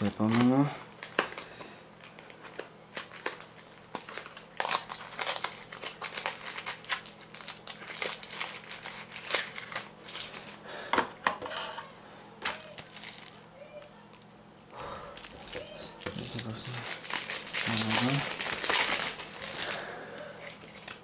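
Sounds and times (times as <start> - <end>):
foil wrapper crinkling: 0.0 - 10.6, 12.4 - 14.2, 15.1 - 21.0.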